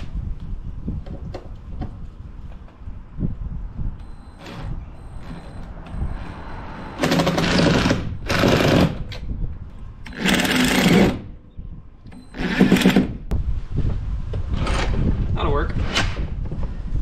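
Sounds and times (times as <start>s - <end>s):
cordless drill driving screws: 10.1s - 11.2s.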